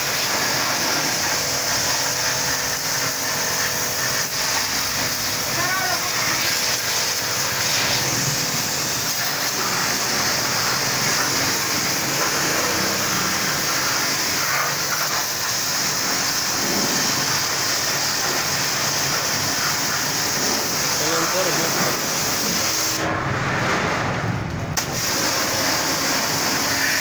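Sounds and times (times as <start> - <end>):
pump humming: 0.0 - 23.4
pressure washer spraying water: 0.0 - 27.0.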